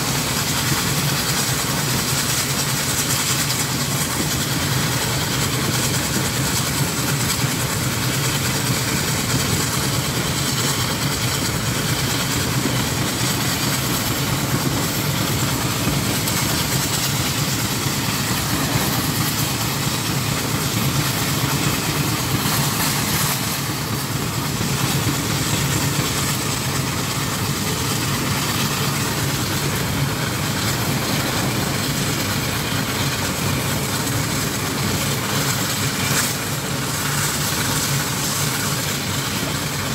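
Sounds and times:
steam traction engine running: 0.0s - 39.9s.

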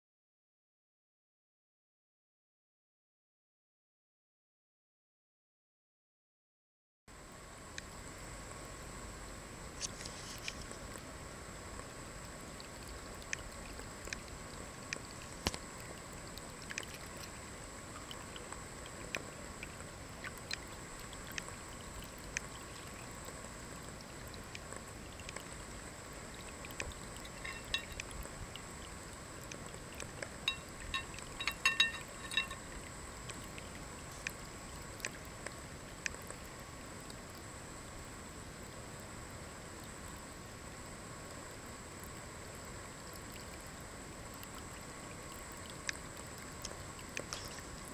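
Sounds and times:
small ticks: 9.8s - 11.1s, 11.7s - 37.6s, 43.0s - 47.9s
water trickling into a bowl: 9.8s - 37.6s, 41.3s - 47.9s.

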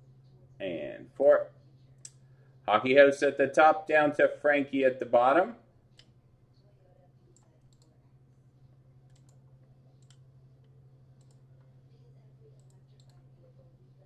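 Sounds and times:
steady low hum: 0.0s - 14.0s
computer mouse clicks: 7.4s - 8.0s, 9.0s - 11.7s, 12.6s - 13.3s.

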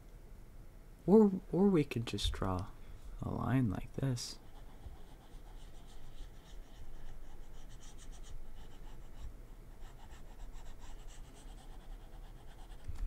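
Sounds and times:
stylus scratching drawing tablet: 4.4s - 12.9s.

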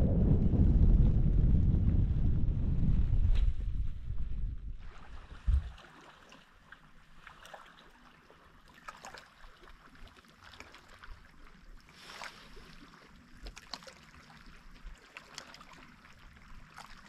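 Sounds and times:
light rain on water and boat: 4.6s - 17.0s.

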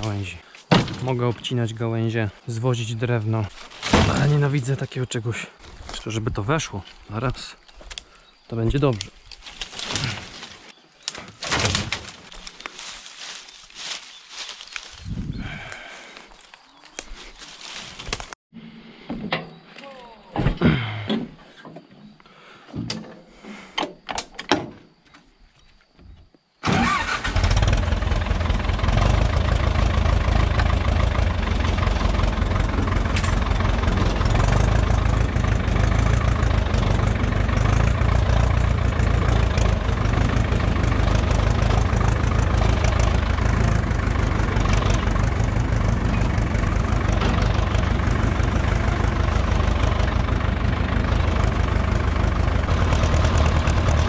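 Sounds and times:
tractor diesel engine running: 0.0s - 8.0s, 11.6s - 16.4s, 26.6s - 54.0s
knocks and clatters: 32.9s - 34.9s, 44.6s - 50.0s.

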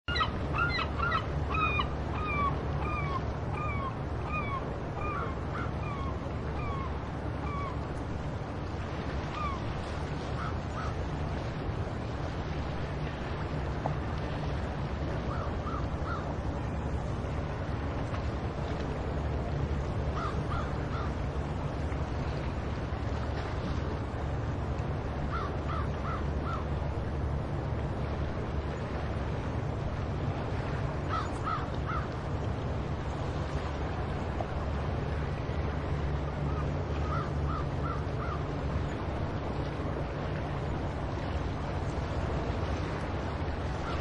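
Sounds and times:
wind: 0.0s - 44.0s
gulls calling: 0.1s - 7.9s, 9.2s - 11.1s, 15.2s - 16.7s, 20.0s - 21.4s, 25.2s - 26.8s, 30.8s - 32.2s, 35.1s - 39.2s, 43.2s - 44.0s
surf: 0.1s - 44.0s.

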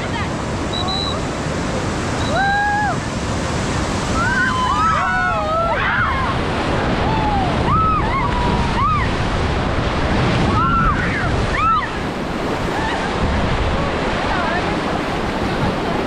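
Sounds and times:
whitewater rapids rushing: 0.0s - 16.0s
wind buffeting microphone: 1.3s - 16.0s
people shouting and whooping: 2.3s - 3.1s, 4.1s - 9.2s, 10.4s - 12.0s, 12.6s - 13.3s.

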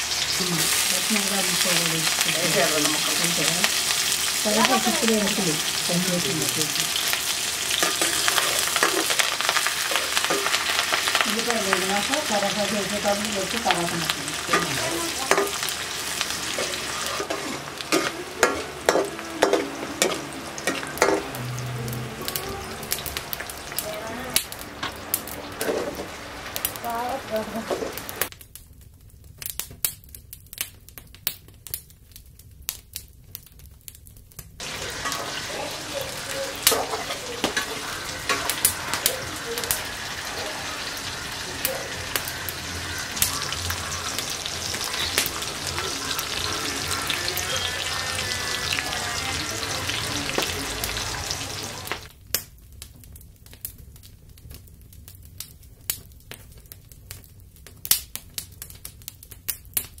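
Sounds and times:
food sizzling and popping in pan: 0.0s - 60.0s
scattered clicks and crackles: 51.9s - 60.0s.

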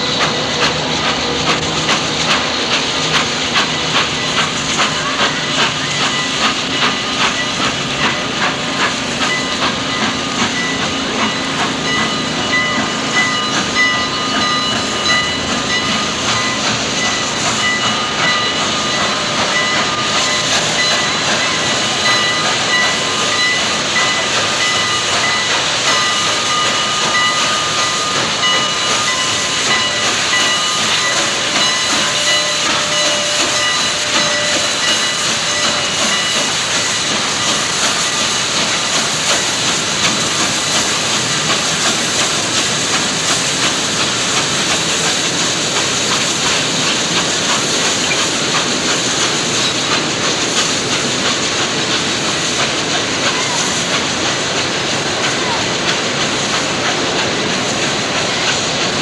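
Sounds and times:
steam locomotive hissing: 0.0s - 59.0s
thin high steady tones: 3.6s - 38.4s.

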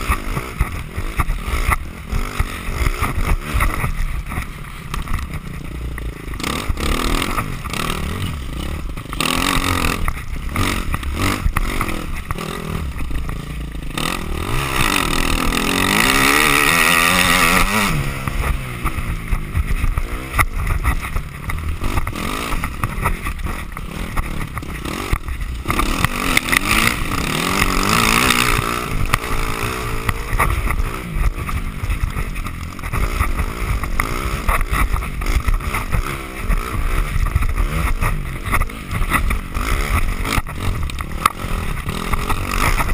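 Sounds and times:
motorcycle engine revving: 0.0s - 42.9s.

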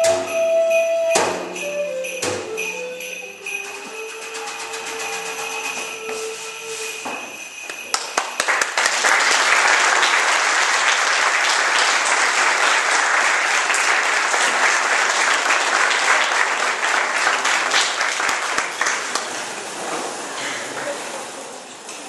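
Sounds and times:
audience applauding: 7.8s - 19.6s.

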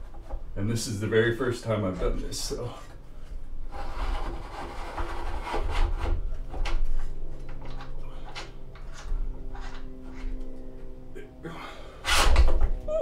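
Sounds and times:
metal bar scraping: 3.7s - 10.6s.

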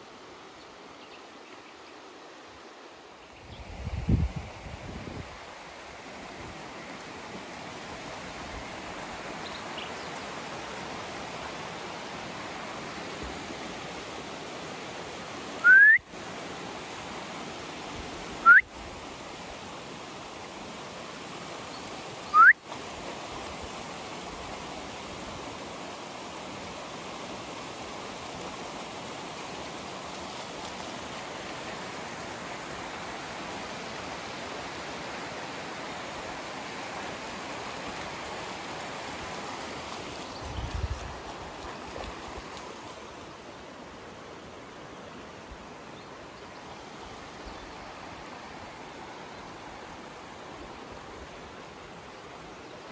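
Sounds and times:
stream running over stones: 0.0s - 52.9s
short rising whistles: 15.6s - 16.0s.

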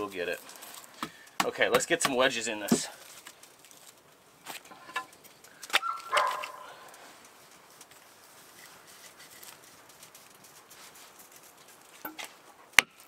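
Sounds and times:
wooden wedges knocking: 1.0s - 3.0s.

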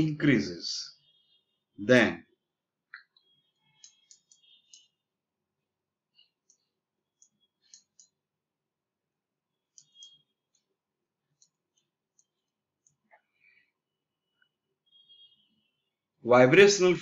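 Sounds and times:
stylus tapping on graphics tablet: 2.9s - 5.0s, 6.1s - 8.4s, 9.6s - 13.3s.

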